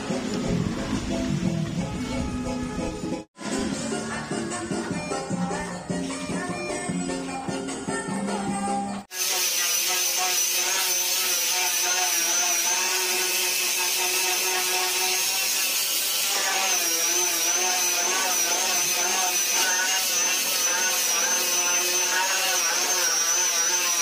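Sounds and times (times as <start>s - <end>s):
angle grinder grinding metal: 9.1s - 24.0s.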